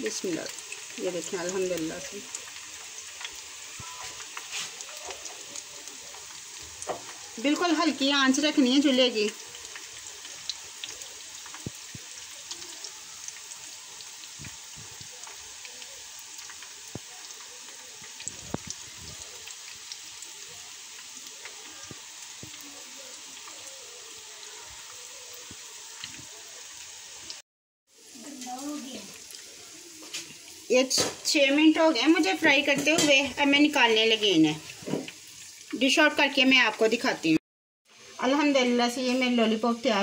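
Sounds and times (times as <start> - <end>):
food deep-frying in hot oil: 0.0 - 40.0.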